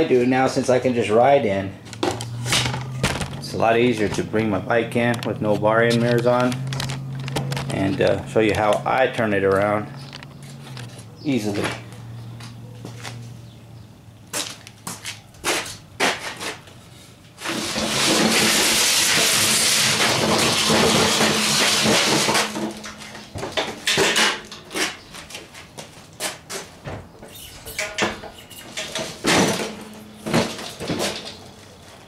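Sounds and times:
motorcycle clunks and knocks: 1.9s - 4.3s, 28.0s - 31.4s
metal stand scraping on floor: 2.0s - 4.5s, 17.4s - 25.0s.

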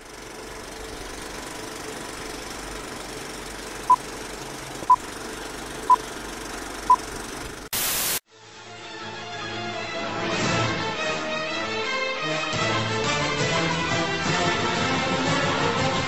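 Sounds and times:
film projector rattle: 0.0s - 7.7s
burst of static: 7.7s - 8.2s
music: 8.3s - 16.0s.

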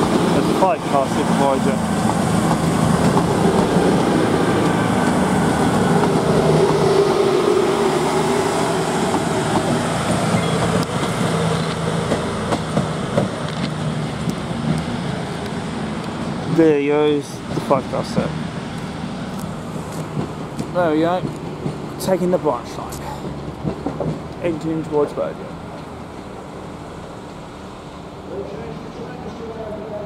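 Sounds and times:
diesel train engines: 0.0s - 30.0s
wheels clicking over rail joints: 0.1s - 6.8s, 9.0s - 16.3s, 19.4s - 26.4s.

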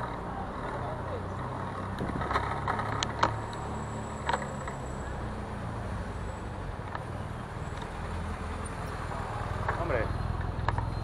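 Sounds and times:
street traffic: 0.0s - 11.0s.

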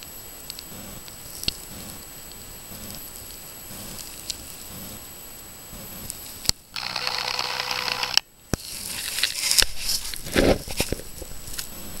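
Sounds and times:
microphone rustling and crackling: 0.6s - 2.0s, 2.7s - 5.1s, 8.6s - 12.0s.

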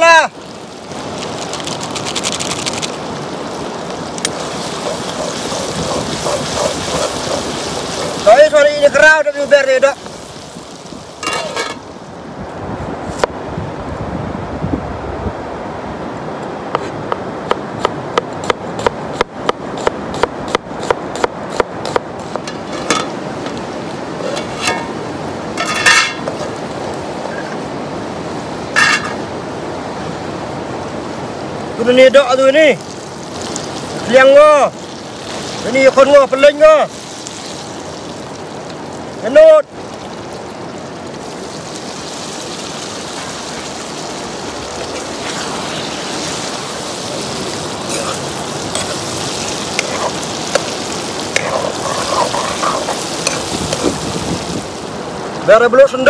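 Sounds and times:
curry simmering and sizzling: 0.0s - 12.3s, 21.5s - 55.4s
river rushing: 0.0s - 56.0s
spice powder shaken into pan: 1.2s - 3.0s
scrapes and clanks: 24.2s - 24.9s.

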